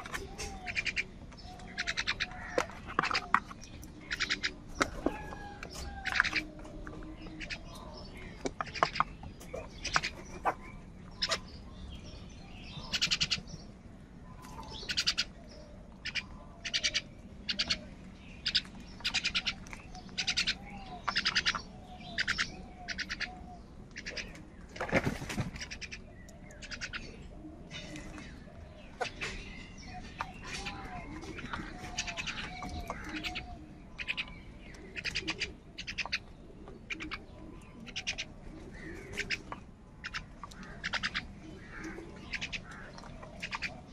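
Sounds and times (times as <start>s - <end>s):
crows cawing: 1.7s - 3.4s, 4.0s - 6.6s, 37.9s - 43.8s.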